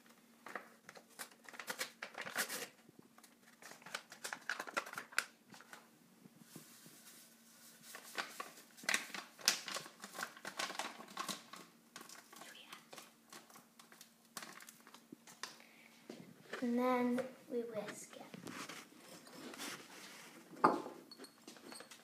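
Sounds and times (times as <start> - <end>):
plastic sachet crinkling: 0.4 - 5.8, 6.7 - 15.6.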